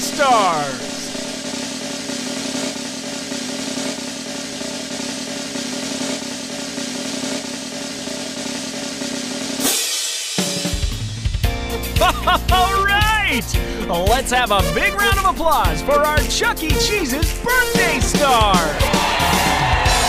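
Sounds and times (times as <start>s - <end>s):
snare drum roll: 0.0s - 11.3s
sustained show music chord: 11.8s - 18.8s.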